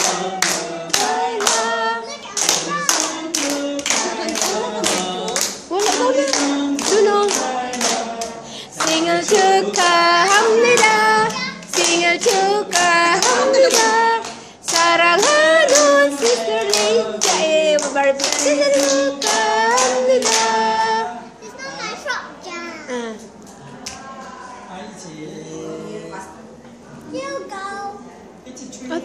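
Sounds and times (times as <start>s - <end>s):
group singing: 0.0s - 21.6s, 23.0s - 26.7s
hands clapping: 2.4s - 10.9s, 16.6s - 20.5s.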